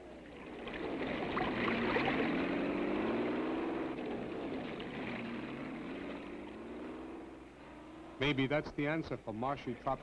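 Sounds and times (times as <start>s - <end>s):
engine running under load: 0.0s - 8.7s
water churning: 0.1s - 7.0s.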